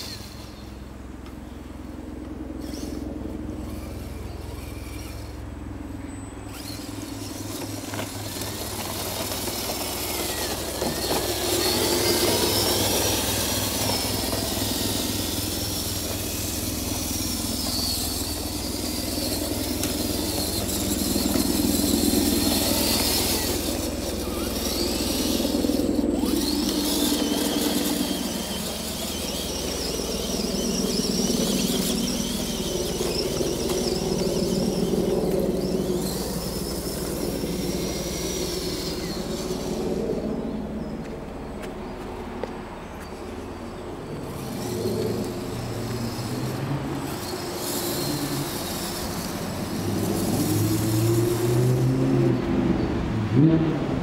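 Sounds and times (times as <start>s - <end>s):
toy truck electric motor whining: 0.0s - 0.8s, 2.4s - 40.8s, 43.6s - 52.3s
tyres crunching dry leaves: 6.5s - 40.0s.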